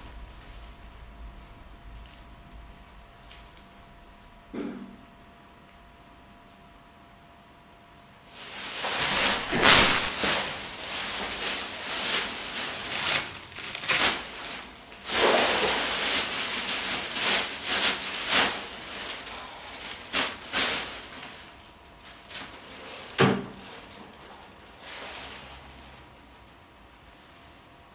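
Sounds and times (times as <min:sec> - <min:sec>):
plastic bag rustling: 0:08.5 - 0:21.4.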